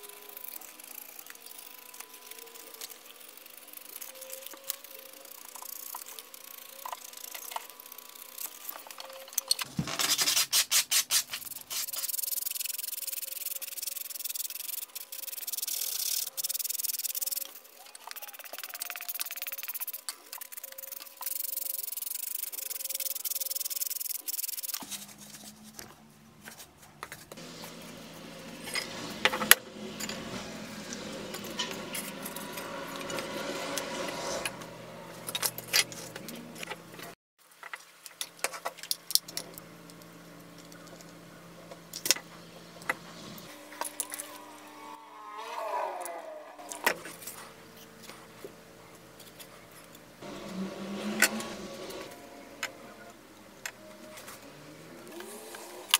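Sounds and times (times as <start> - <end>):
sandpaper rubbing on metal: 10.0 - 25.6.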